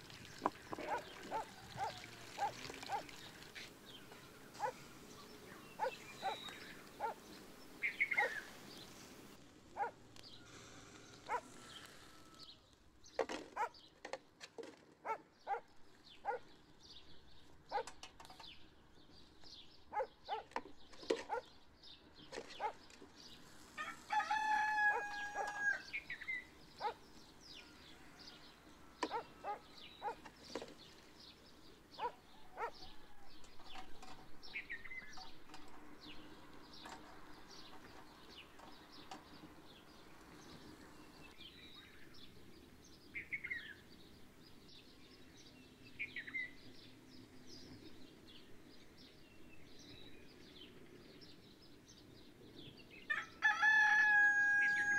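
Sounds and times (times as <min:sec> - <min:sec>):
rooster crowing: 0:11.6 - 0:12.7, 0:23.8 - 0:26.0, 0:53.1 - 0:54.9.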